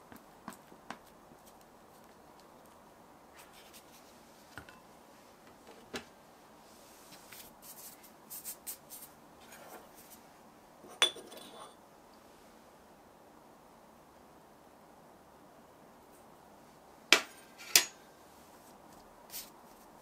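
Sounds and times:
light rustling scrapes: 6.7s - 10.2s.

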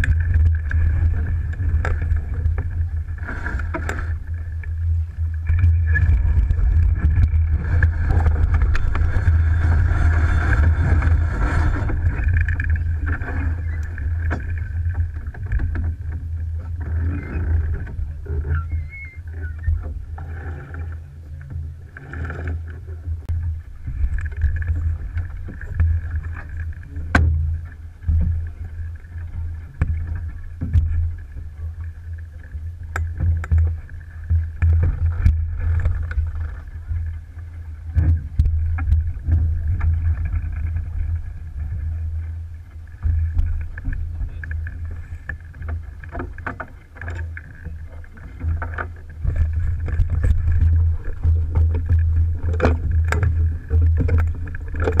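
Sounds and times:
gusting wind rumble: 0.0s - 20.9s
water rushing along hull: 0.0s - 55.0s.

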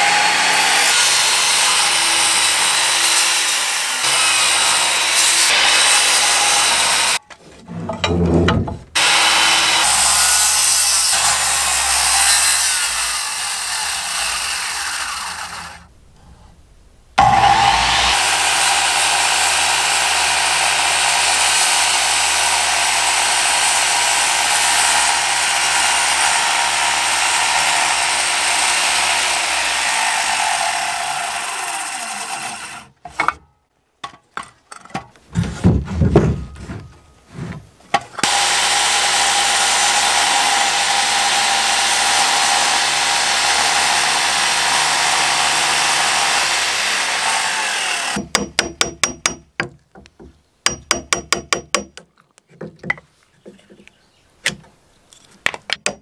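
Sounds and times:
circular saw cutting wood: 0.0s - 8.3s, 9.0s - 15.9s, 17.2s - 33.0s, 38.2s - 48.3s
knocks: 7.8s - 9.0s, 35.3s - 37.0s.

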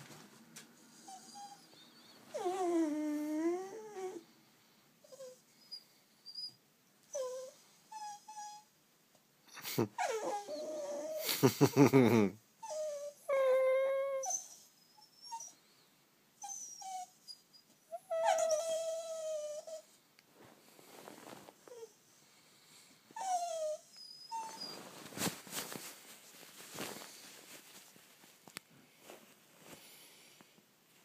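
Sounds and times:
dog whining: 0.9s - 4.2s, 5.0s - 8.7s, 9.5s - 11.3s, 12.6s - 15.6s, 16.4s - 20.0s, 21.7s - 22.1s, 23.2s - 25.0s.

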